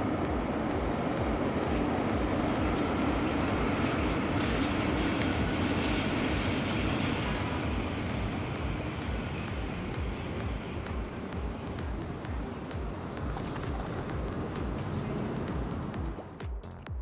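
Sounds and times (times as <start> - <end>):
train wheels rumbling on rail: 0.0 - 16.4
high wheel squeal: 2.1 - 10.4.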